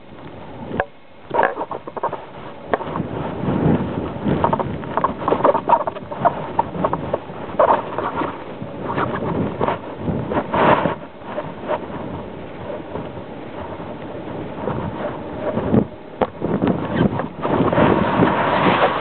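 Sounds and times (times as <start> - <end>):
wind buffeting microphone: 0.0 - 19.0
camera knocking and scraping on sand: 0.8 - 12.2.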